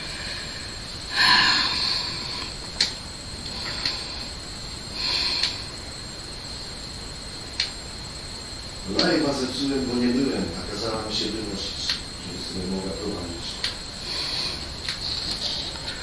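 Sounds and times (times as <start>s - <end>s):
sharp clicks: 7.6s - 7.8s, 13.6s - 13.8s.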